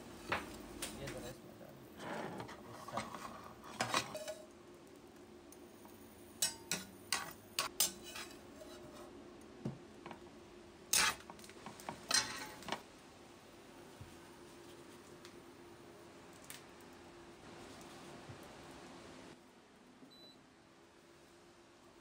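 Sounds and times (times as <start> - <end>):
dishes and utensils clinking: 2.8 - 4.5, 6.4 - 8.9, 12.0 - 12.8.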